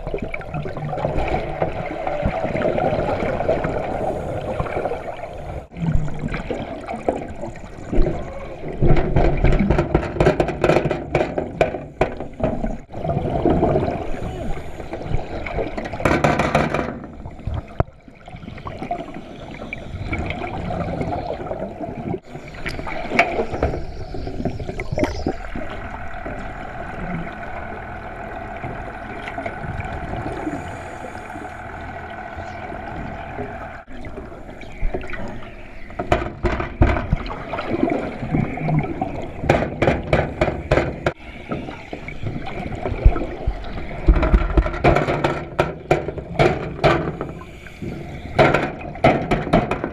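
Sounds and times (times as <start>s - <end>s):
water gurgling and sloshing: 0.0s - 49.9s
clicks and knocks: 8.8s - 12.7s, 15.8s - 17.1s.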